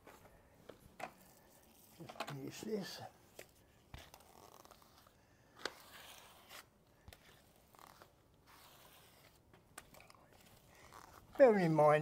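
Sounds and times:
grout float scraping tiles: 3.9 - 11.4.

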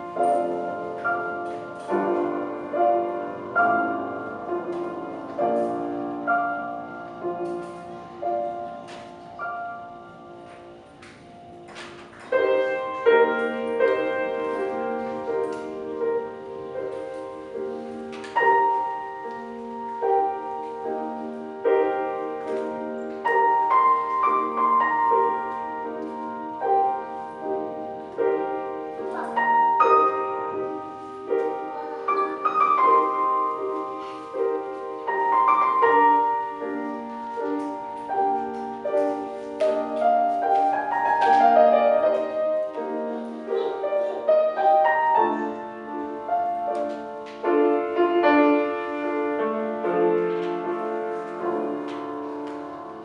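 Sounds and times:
classical piano piece: 0.0 - 53.0.

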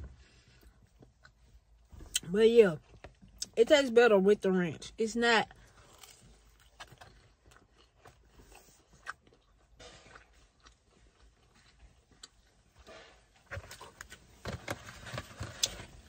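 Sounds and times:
chewing crunchy pizza: 0.6 - 3.6, 5.5 - 14.2.

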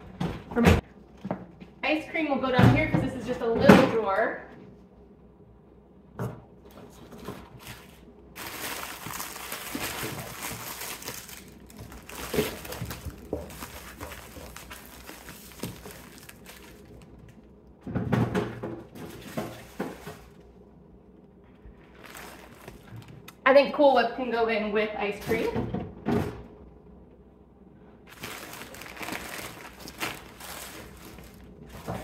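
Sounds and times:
plastic bags crinkling: 7.5 - 17.5, 21.8 - 23.3, 28.1 - 32.0.

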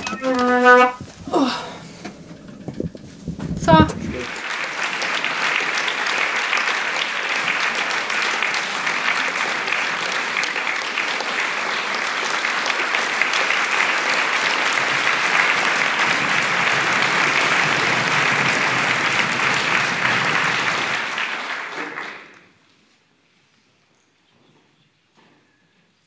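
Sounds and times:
audience applauding: 0.0 - 1.0, 3.7 - 22.6.

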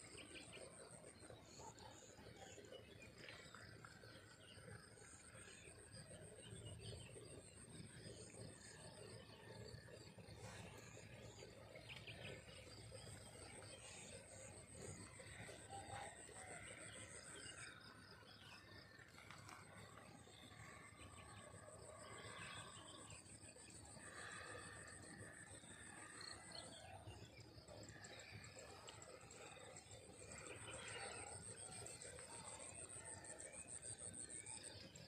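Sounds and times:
faint chirps: 0.0 - 35.0.

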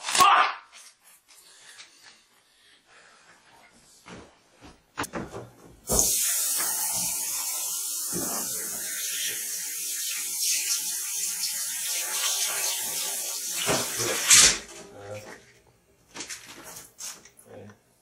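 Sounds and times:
water running into a metal sink: 5.9 - 14.6.

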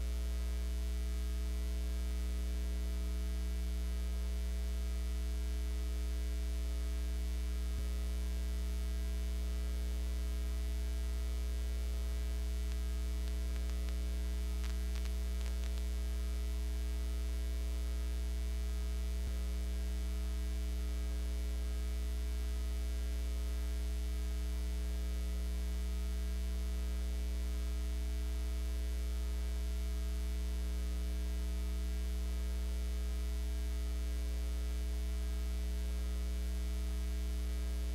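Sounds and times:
electrical mains hum: 4.7 - 24.2
faint clicks: 14.6 - 15.9.

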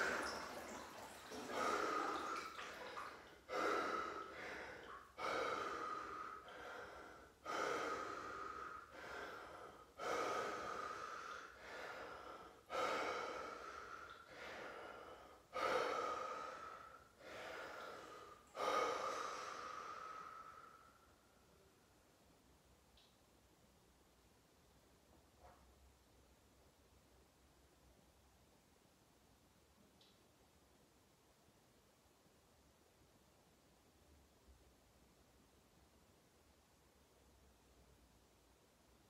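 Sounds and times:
man breathing forcefully: 3.5 - 20.4.

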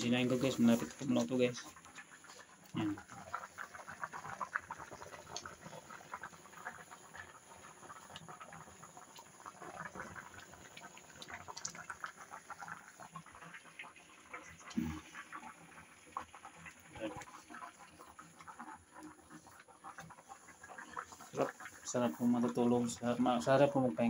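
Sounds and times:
boiling rice crackling and popping: 0.0 - 24.0.

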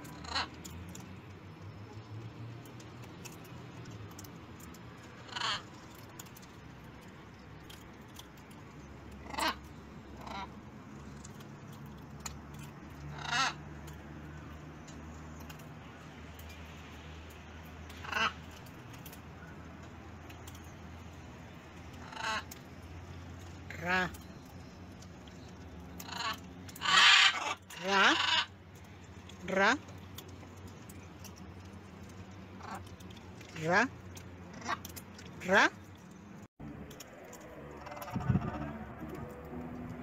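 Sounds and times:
macaws squawking: 5.2 - 5.8, 9.2 - 10.6, 13.1 - 13.6, 17.9 - 18.6, 21.9 - 22.6, 26.0 - 28.6, 37.7 - 39.1.

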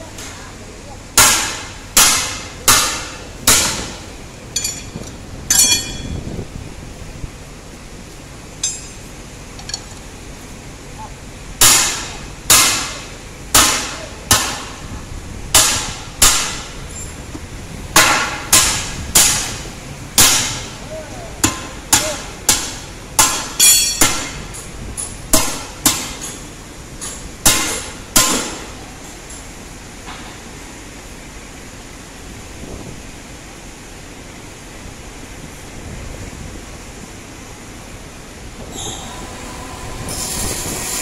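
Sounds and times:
hammer ringing on steel rim: 4.6 - 6.2.

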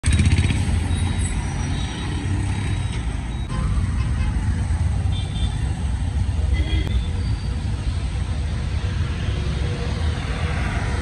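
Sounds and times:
busy street traffic rumble: 0.0 - 11.0.

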